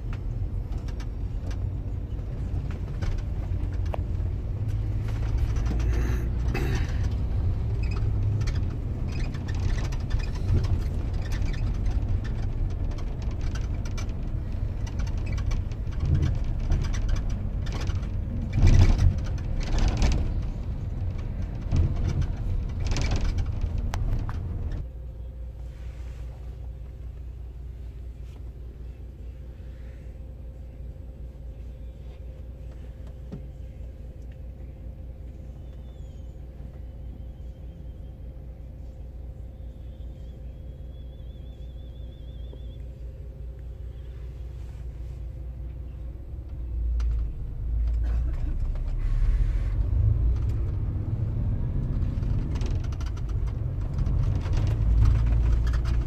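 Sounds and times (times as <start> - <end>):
rattles and knocks: 0.0 - 24.9, 51.8 - 56.0
bus engine and road rumble: 0.0 - 56.0
quiet steady hum: 8.6 - 50.4.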